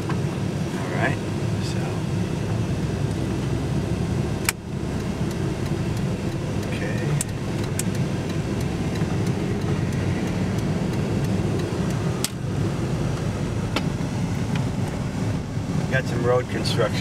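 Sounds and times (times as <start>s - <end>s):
engine rumble: 0.0s - 17.0s
road noise: 0.0s - 17.0s
sharp clicks: 4.4s - 12.4s.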